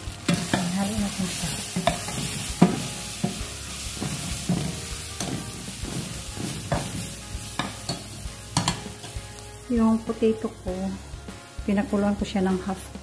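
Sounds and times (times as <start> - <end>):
steady sizzle: 0.0 - 13.0
ladle knocking and scraping pot: 1.4 - 9.2.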